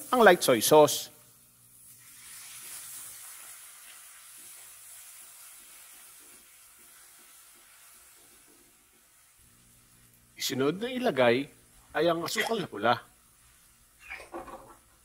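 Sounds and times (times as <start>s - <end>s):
sauce sizzling in frying pan: 0.0s - 10.4s.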